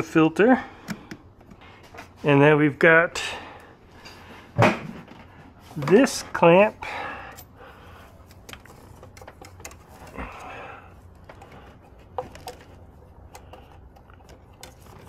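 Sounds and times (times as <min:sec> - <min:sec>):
hands clicking and rustling hoses: 0:05.0 - 0:15.0.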